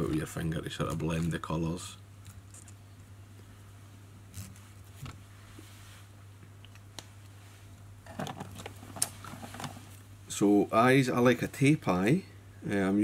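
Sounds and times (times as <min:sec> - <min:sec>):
faint clicks and rustles of handling: 0:00.0 - 0:01.6, 0:02.2 - 0:03.6, 0:04.3 - 0:10.1
steady low hum: 0:00.0 - 0:13.0.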